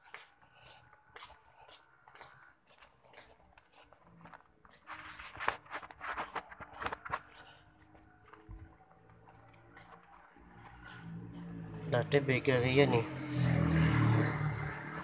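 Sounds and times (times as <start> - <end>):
scuffs and rustles: 0.0 - 11.8.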